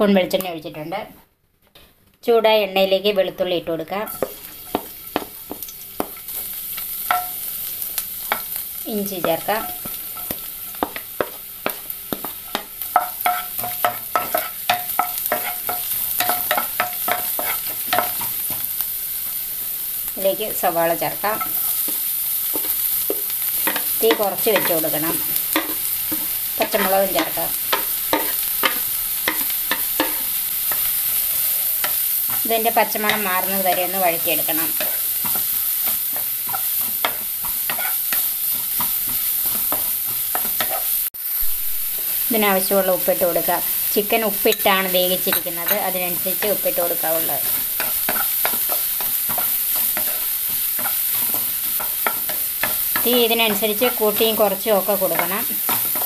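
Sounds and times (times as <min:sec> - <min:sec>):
garlic sizzling in oil: 0:02.6 - 0:56.0
spatula knocking on ringing pan: 0:07.1 - 0:07.4, 0:09.2 - 0:18.6
wooden spatula scraping a pan: 0:09.1 - 0:18.7, 0:21.2 - 0:40.9, 0:44.5 - 0:56.0.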